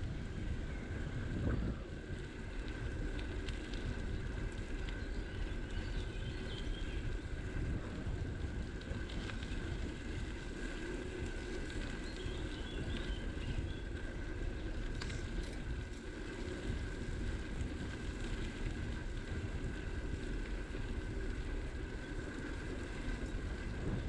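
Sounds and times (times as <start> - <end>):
bicycle tyres rumbling on a path: 0.0 - 24.0
thin steady whine: 0.0 - 24.0
wind buffeting the microphone: 0.0 - 24.0.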